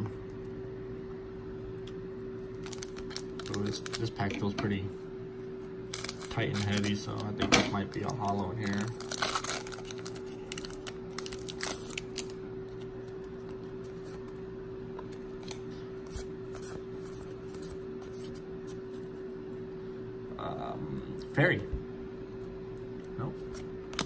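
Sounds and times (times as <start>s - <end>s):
steady low hum: 0.0s - 24.0s
foil pack crinkling: 2.5s - 4.5s, 5.9s - 12.8s.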